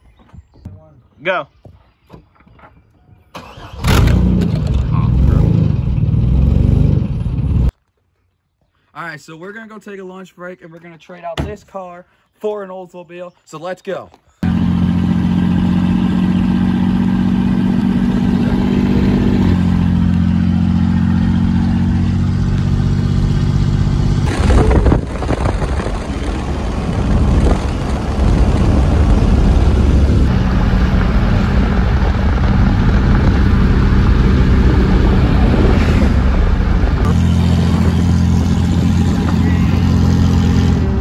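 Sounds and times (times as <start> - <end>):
road noise: 2.3 - 7.8, 13.9 - 41.0
vehicle engine drone: 3.4 - 7.7, 14.4 - 41.0
loud rushing noise: 23.9 - 41.0.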